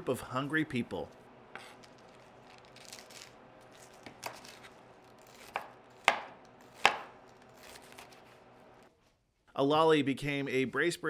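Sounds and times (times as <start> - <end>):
knife chopping lettuce on board: 4.2 - 8.1.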